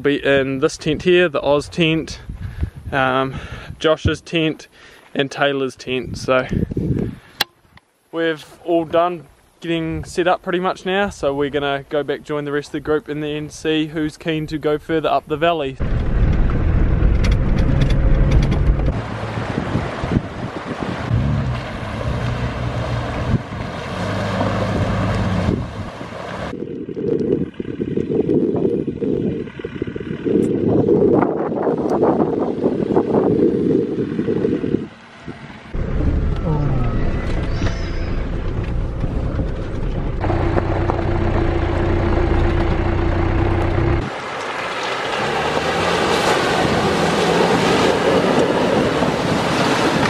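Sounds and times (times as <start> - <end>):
wind rumble on microphone: 0.0 - 4.2, 6.0 - 7.8, 15.8 - 41.0, 46.2 - 50.0
vehicle engine running: 15.8 - 19.5, 27.4 - 31.5, 34.0 - 44.2
flowing river water: 18.9 - 26.5, 44.0 - 50.0.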